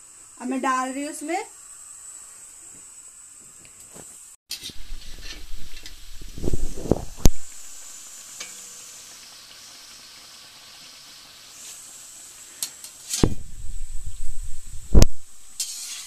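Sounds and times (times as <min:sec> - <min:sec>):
dough sizzling in hot oil: 0:00.0 - 0:16.0
ladle scraping pan: 0:04.5 - 0:07.8, 0:15.1 - 0:16.0.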